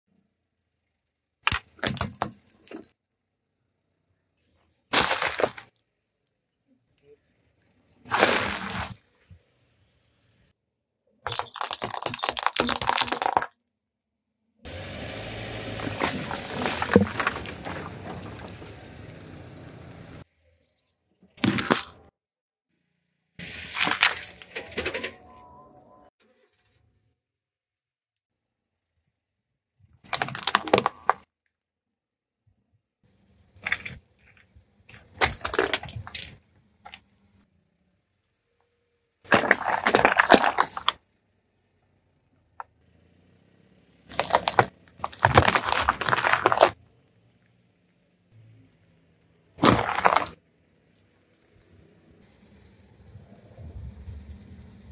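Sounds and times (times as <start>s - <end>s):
sharp plastic cracks: 1.4s - 2.8s, 30.1s - 31.3s, 34.9s - 37.0s
tyre crunching plastic tubes: 1.4s - 2.9s, 4.9s - 5.8s, 8.0s - 9.2s, 11.2s - 13.5s, 15.7s - 18.8s, 21.4s - 22.1s, 23.4s - 25.0s, 30.1s - 31.2s, 33.6s - 37.0s, 39.3s - 41.0s, 44.1s - 46.8s, 49.6s - 50.4s
tyre rolling through liquid: 15.6s - 19.1s, 39.3s - 41.0s, 44.1s - 46.8s, 49.6s - 50.4s
plastic toy cracking and snapping: 30.1s - 31.2s.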